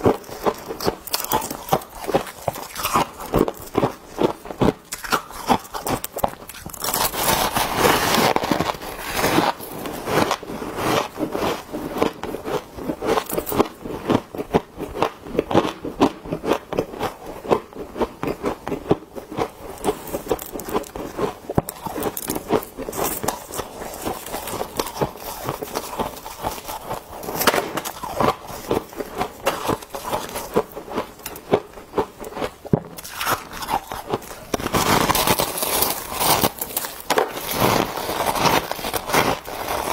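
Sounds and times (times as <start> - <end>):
frost being chewed crunchily: 0.0 - 39.9.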